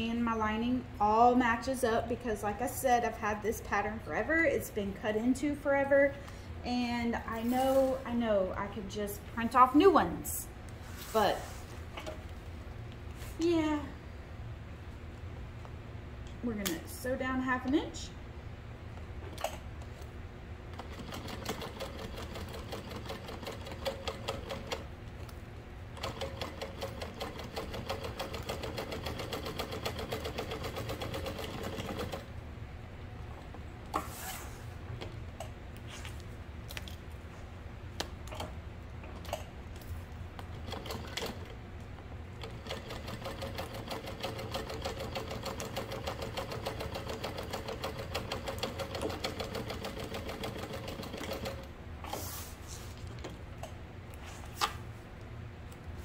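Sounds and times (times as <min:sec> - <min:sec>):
sewing machine stitching: 0:40.6 - 0:41.5, 0:42.4 - 0:52.2.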